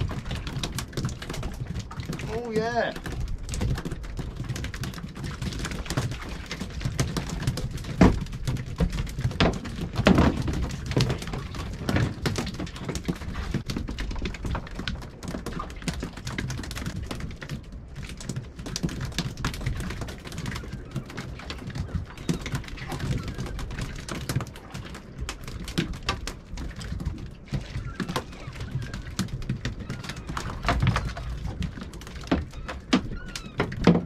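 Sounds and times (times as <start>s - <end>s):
wind rumbling on microphone: 0.0s - 34.0s.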